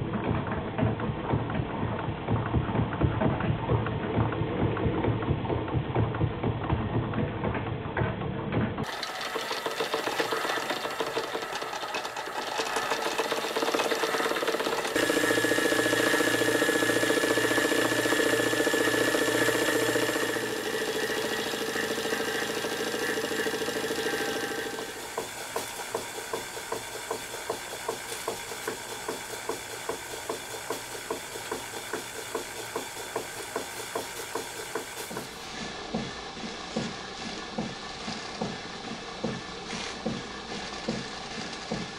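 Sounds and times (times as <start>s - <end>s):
small steam engine clattering: 8.8s - 41.9s
steam engine regular beat: 8.8s - 41.9s.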